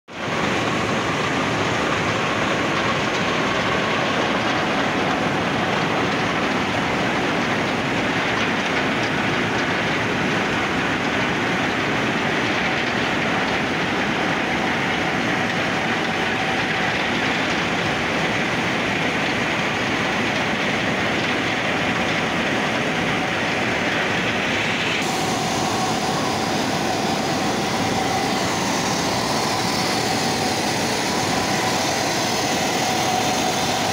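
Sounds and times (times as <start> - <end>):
grinding machine grinding metal: 12.7 - 33.9
motor hum: 12.7 - 33.9.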